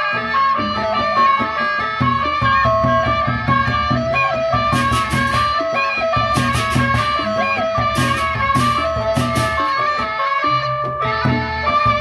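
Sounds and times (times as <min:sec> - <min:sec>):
barrel drums beating: 0:00.0 - 0:12.0
bronze gongs melody: 0:00.0 - 0:12.0
hand cymbals clashing: 0:04.7 - 0:10.0.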